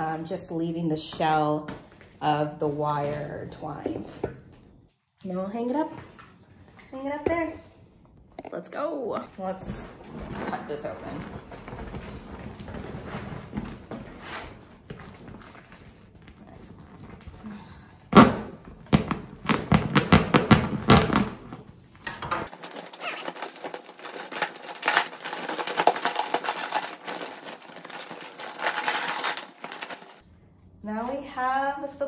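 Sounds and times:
plastic crinkling and crackling: 0:10.3 - 0:17.5, 0:22.4 - 0:30.2
scratchy rustling: 0:22.5 - 0:30.2.

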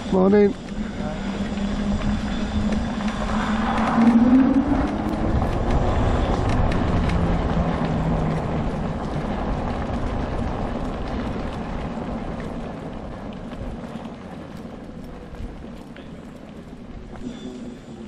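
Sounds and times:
motor whine: 0:00.0 - 0:12.8
rumble from riding: 0:00.0 - 0:18.0.

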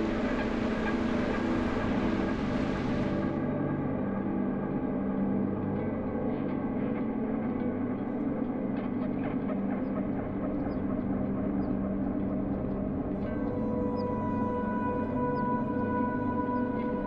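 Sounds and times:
ambient drone music: 0:00.0 - 0:17.0.

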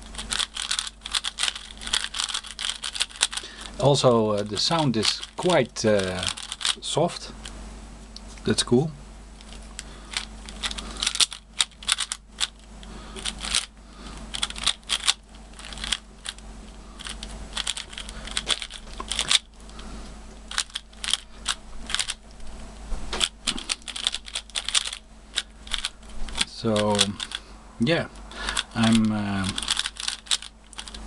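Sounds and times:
puzzle cube clicking: 0:00.1 - 0:03.8, 0:04.4 - 0:06.8, 0:09.4 - 0:12.6, 0:13.2 - 0:13.7, 0:14.3 - 0:16.4, 0:17.0 - 0:19.5, 0:20.5 - 0:22.2, 0:23.2 - 0:27.4, 0:28.4 - 0:31.0.

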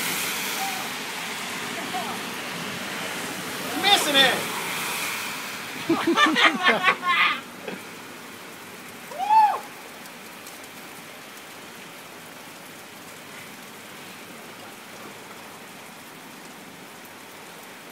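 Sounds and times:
heavy rain on pavement: 0:00.0 - 0:17.9.

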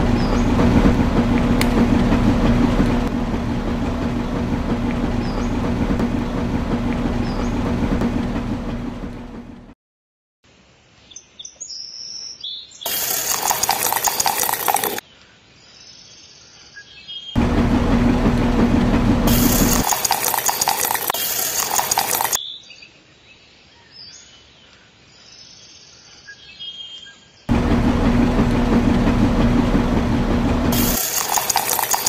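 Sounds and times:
small mixer motor running: 0:12.9 - 0:15.0, 0:17.4 - 0:22.4, 0:27.5 - 0:32.0.

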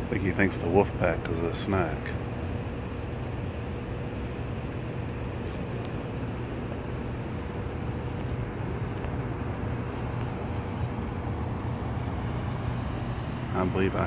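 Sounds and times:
faint constant hum: 0:00.0 - 0:14.0
low background rumble: 0:00.0 - 0:14.0.

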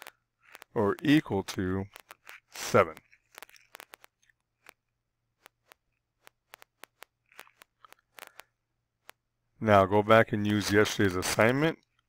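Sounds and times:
small irregular clicks: 0:00.0 - 0:09.3.

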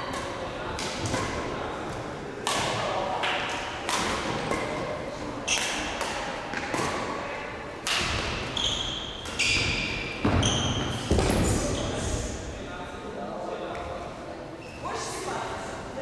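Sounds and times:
rackets hitting shuttlecock: 0:00.1 - 0:07.2, 0:07.8 - 0:08.6, 0:09.2 - 0:11.4
shoes squeaking on court floor: 0:08.4 - 0:12.0.

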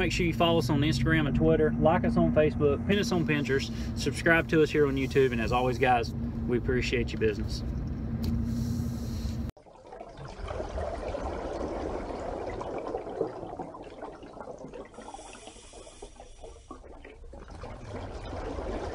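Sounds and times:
trickling water: 0:00.0 - 0:02.0, 0:09.5 - 0:18.9.

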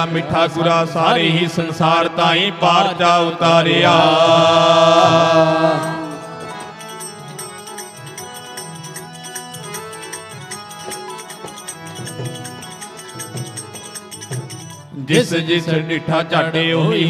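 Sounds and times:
person singing: 0:00.0 - 0:06.9
harmoniums playing melody: 0:00.0 - 0:17.0
tabla strokes: 0:04.2 - 0:14.9.

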